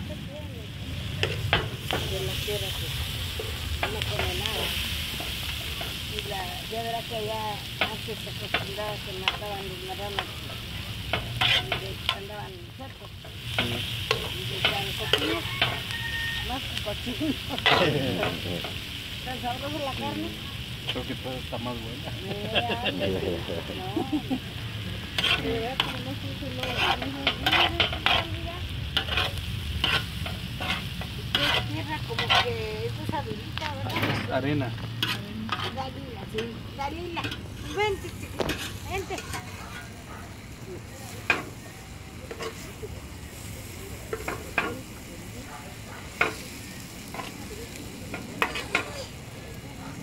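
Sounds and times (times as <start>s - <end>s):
food sizzling: 0.0s - 50.0s
metal spoon scraping pan: 7.7s - 12.4s, 13.3s - 16.5s, 17.6s - 18.8s, 25.1s - 28.4s, 29.0s - 32.6s, 35.0s - 40.0s, 48.1s - 49.0s.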